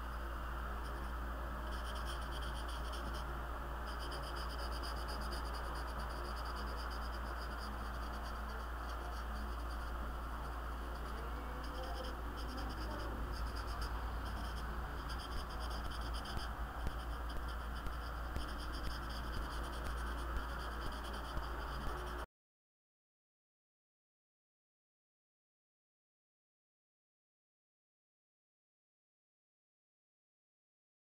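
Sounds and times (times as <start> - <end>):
steady low hum: 0.0 - 22.3
marker scratching on paper: 0.8 - 3.3, 3.9 - 22.2.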